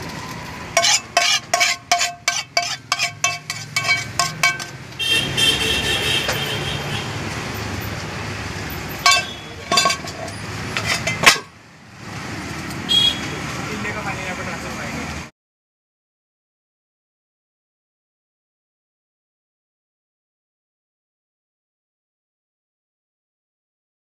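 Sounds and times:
street traffic: 0.0s - 15.3s
metal utensil tapping cooking pan: 0.8s - 5.0s, 9.0s - 11.5s
car horn: 5.0s - 7.2s, 9.1s - 9.6s, 12.9s - 13.4s.

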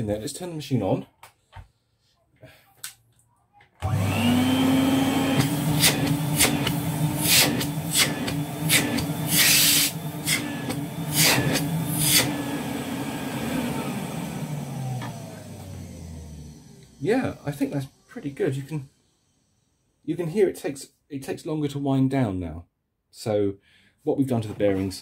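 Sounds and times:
motor winding down whine: 3.8s - 19.8s
vacuum cleaner humming: 3.8s - 19.8s.

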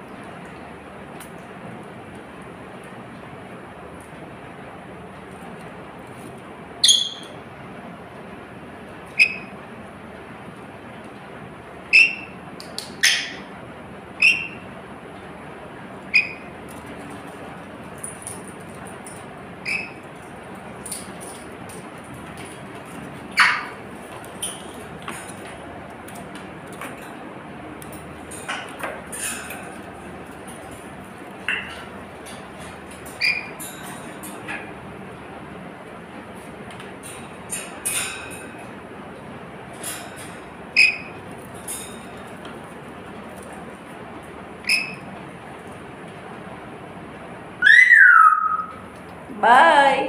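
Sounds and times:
parrot giving sharp high calls: 47.6s - 48.7s.

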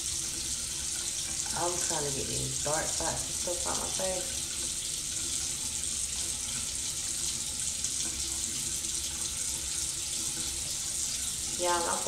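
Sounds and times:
running water hissing: 0.0s - 12.0s.

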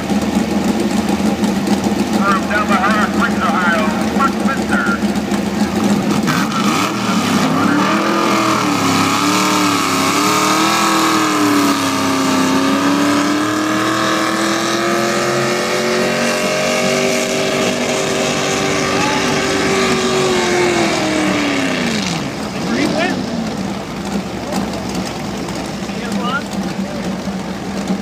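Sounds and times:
tractor engine running hard: 0.0s - 28.0s.

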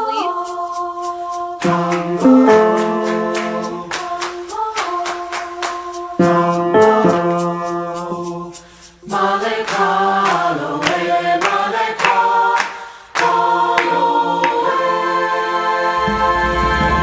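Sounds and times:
choir singing in harmony: 0.0s - 17.0s
sharp handclaps: 1.6s - 6.1s, 9.5s - 14.8s.

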